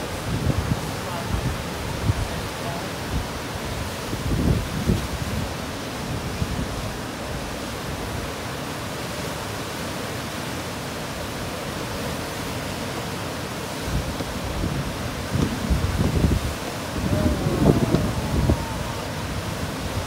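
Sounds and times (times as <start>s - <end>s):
wind gusts buffeting: 0.0s - 8.1s, 13.8s - 20.0s
river whitewater rushing: 0.0s - 20.0s.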